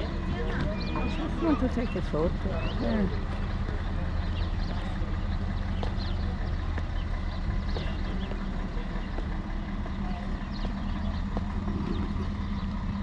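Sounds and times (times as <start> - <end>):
bird chirps: 0.0 - 13.0
engine idling: 0.0 - 13.0.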